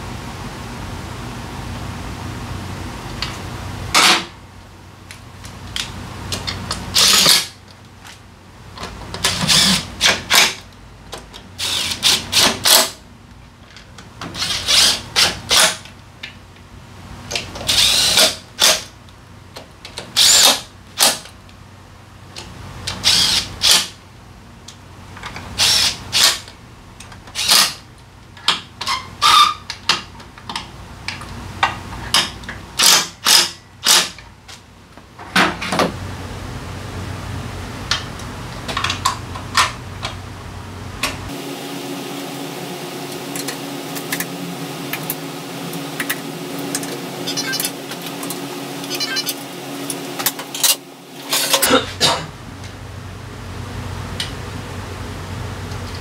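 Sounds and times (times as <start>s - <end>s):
impact wrench bursts: 6.9s - 7.6s, 9.2s - 10.6s, 11.6s - 13.0s, 14.3s - 15.8s, 17.7s - 18.9s, 20.1s - 21.2s, 22.9s - 24.0s, 25.6s - 26.5s, 27.4s - 27.9s, 32.8s - 34.2s.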